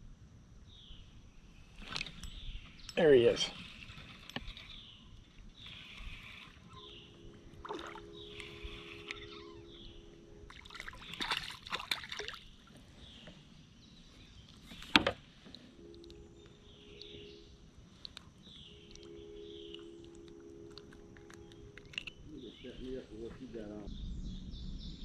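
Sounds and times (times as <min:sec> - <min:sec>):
fishing reel whirring: 0:03.2 - 0:10.4
fish splashing in water: 0:07.5 - 0:09.5, 0:10.5 - 0:12.7.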